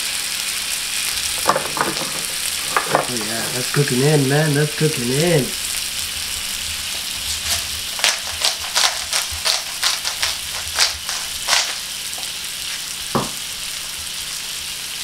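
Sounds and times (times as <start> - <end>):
food sizzling on a griddle: 0.0 - 15.0
spice grinder crunching: 1.0 - 12.9.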